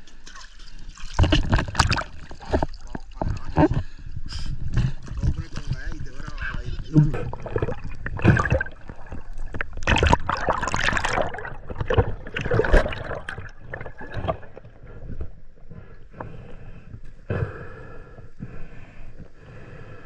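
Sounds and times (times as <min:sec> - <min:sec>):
water splashing and gurgling: 0:00.0 - 0:04.0, 0:04.6 - 0:15.6.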